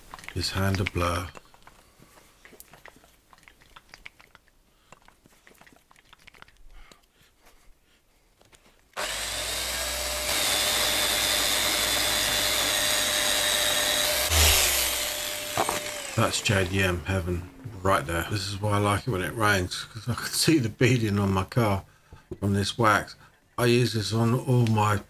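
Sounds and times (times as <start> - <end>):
handling clicks and rubbing: 0.0 - 7.1
electric sander whining: 9.0 - 17.6.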